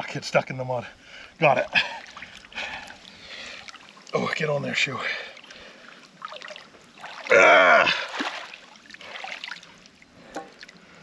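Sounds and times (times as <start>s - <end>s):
water sloshing and splashing: 1.4s - 11.0s
water dripping: 1.7s - 10.9s
person grunting: 7.3s - 8.1s.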